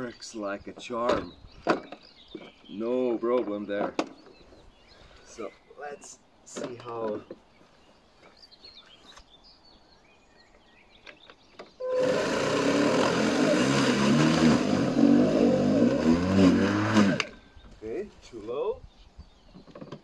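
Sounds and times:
lawn mower cutting grass: 11.8 - 17.5.

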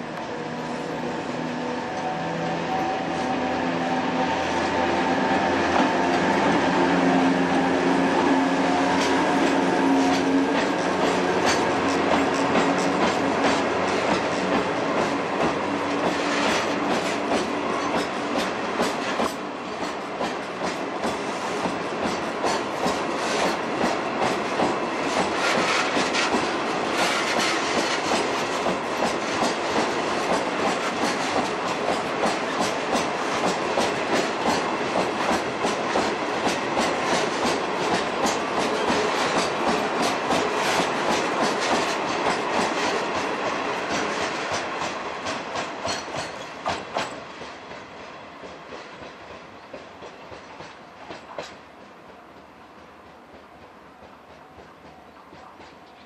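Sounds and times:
train wheels clacking over rail joints: 4.8 - 56.0.

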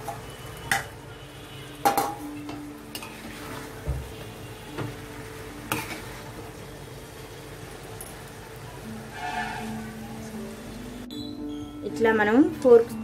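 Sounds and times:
low sizzle from hot pan: 0.0 - 13.0
metal spoon scraping frying pan: 5.7 - 6.2, 9.1 - 9.9.

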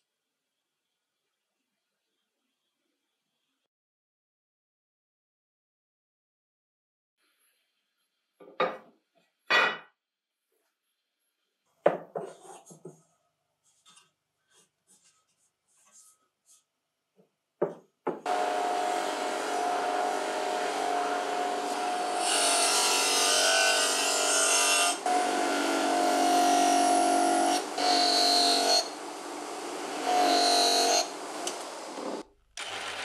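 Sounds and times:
bench grinder whining: 18.3 - 33.0.

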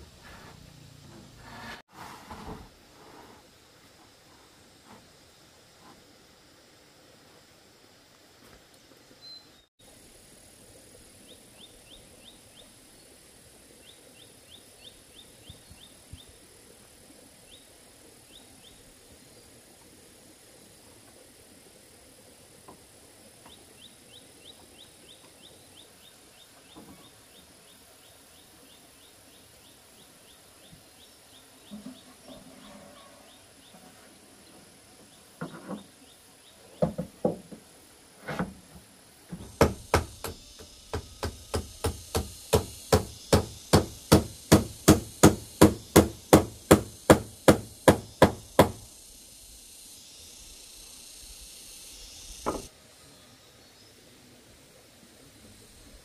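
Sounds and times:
faint insect chirping: 2.3 - 56.0
hammer nailing roofing sheets: 39.3 - 48.8.

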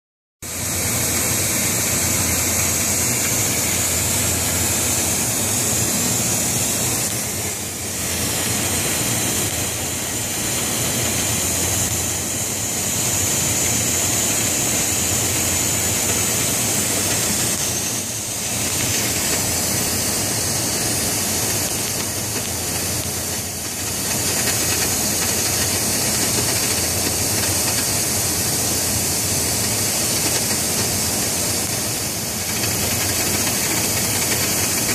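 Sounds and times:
cutting torch hissing: 0.5 - 34.9.

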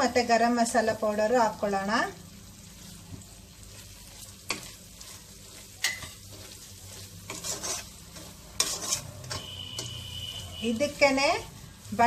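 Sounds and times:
light sizzle of frying: 0.0 - 12.0
spatula scraping a pan: 2.6 - 12.0.

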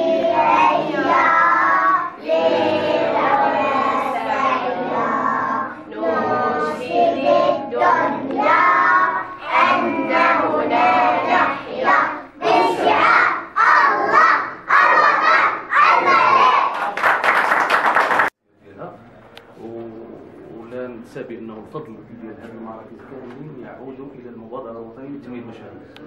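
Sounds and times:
children singing in unison: 0.0 - 16.8.

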